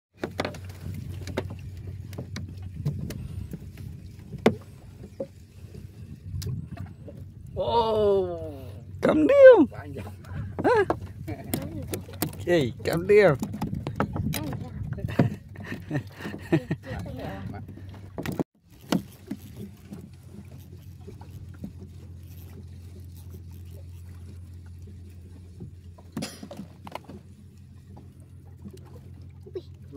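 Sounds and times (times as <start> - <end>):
low rumble of water and wind: 0.1 - 29.9
fishing reel being cranked: 18.7 - 24.4.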